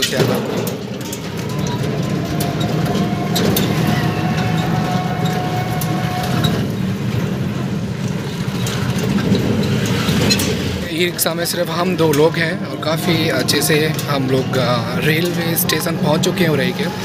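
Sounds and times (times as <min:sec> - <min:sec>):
frame rattles and knocks: 0:00.0 - 0:17.0
rickshaw rumble on rough road: 0:00.0 - 0:17.0.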